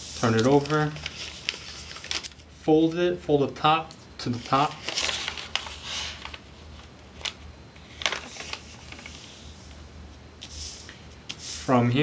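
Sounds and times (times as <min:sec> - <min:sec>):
paper folding and rustling: 0:00.0 - 0:02.5, 0:04.2 - 0:09.8.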